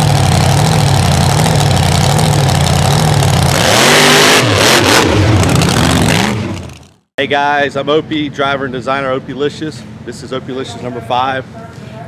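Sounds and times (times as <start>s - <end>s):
engine revving hard: 0.0s - 7.0s
tires spinning in dirt: 0.0s - 7.0s.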